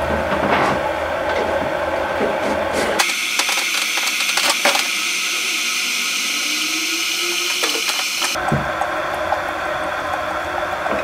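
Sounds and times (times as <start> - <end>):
coffee maker hissing and bubbling: 3.0 - 11.0.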